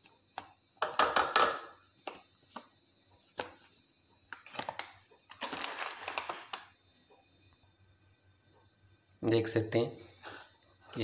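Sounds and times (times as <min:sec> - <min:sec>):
powder rustling: 0:02.4 - 0:06.7
plastic packet crinkling: 0:04.3 - 0:06.7.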